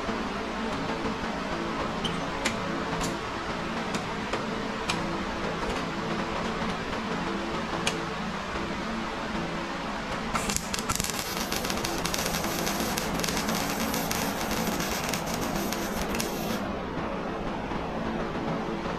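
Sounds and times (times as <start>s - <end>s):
welder arc crackling: 10.4s - 16.6s.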